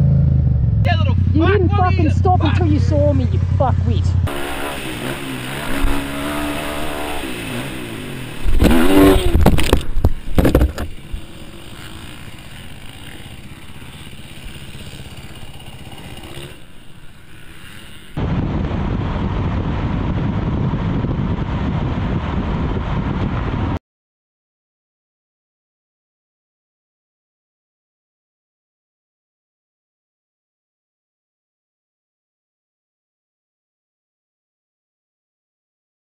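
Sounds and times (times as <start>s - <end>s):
dirt bike engine revving: 0.0s - 18.3s
car road noise at highway speed: 0.0s - 23.8s
bike crash scraping and clattering: 4.3s - 18.2s.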